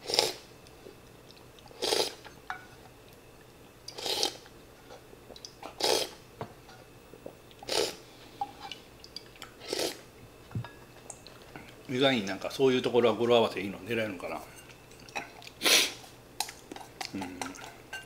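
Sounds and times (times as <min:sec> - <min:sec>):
person slurping broth: 0:00.0 - 0:00.4, 0:01.7 - 0:02.2, 0:03.9 - 0:04.4, 0:05.7 - 0:06.2, 0:07.6 - 0:08.0, 0:09.6 - 0:10.0.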